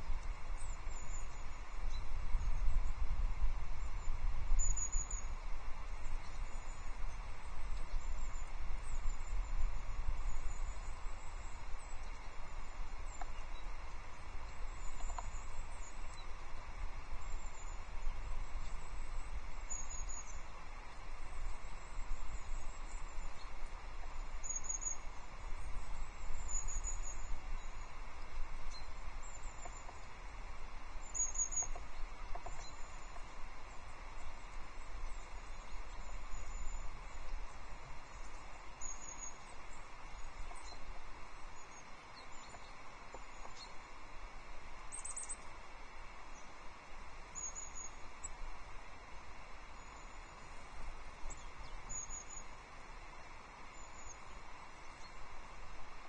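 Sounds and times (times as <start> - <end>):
low steady rumble: 0.0 - 56.0
small birds calling: 3.8 - 56.0.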